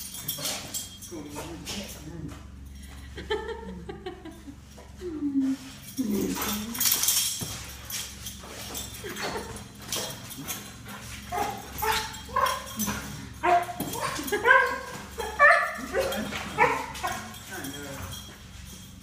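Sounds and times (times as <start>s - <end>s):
dog whining and yipping: 11.3s - 18.2s.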